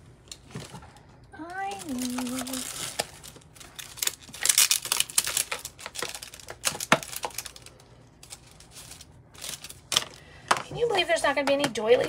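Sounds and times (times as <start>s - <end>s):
paper rustling: 1.7s - 10.2s.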